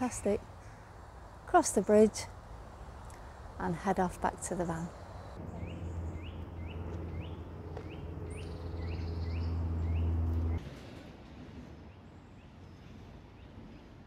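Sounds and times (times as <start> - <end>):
bird chirping: 4.5 - 10.6
low engine hum: 4.9 - 11.0.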